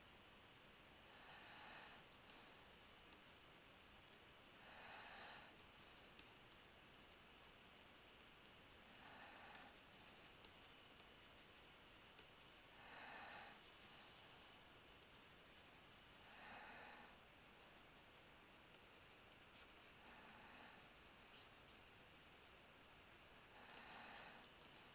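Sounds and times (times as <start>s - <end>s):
soft breathing into microphone: 12.7s - 14.7s, 16.1s - 18.2s, 19.8s - 21.0s, 23.4s - 24.9s.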